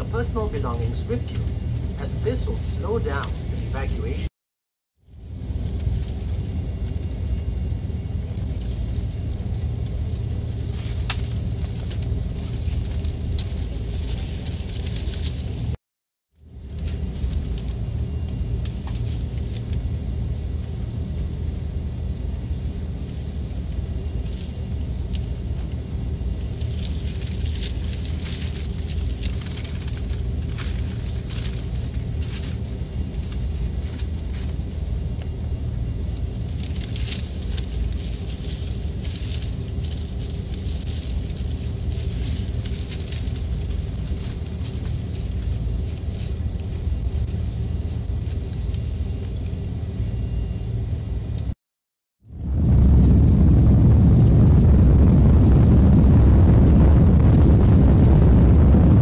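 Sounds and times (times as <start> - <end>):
airplane cabin low rumble: 0.0 - 4.3, 5.0 - 15.8, 16.4 - 51.6, 52.2 - 59.0
faint clicking and crackling: 23.6 - 35.4.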